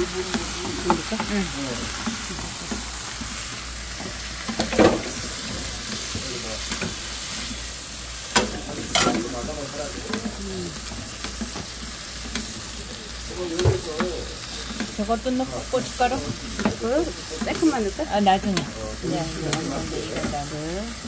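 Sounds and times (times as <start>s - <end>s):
eggplant sizzling in frying pan: 0.0s - 21.0s
spatulas scraping and knocking pan: 8.3s - 20.7s.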